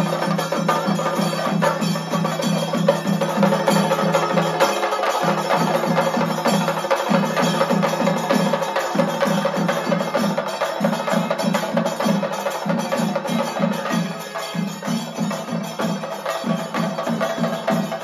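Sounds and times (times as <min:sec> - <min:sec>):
drum ensemble beating: 0:00.0 - 0:18.0.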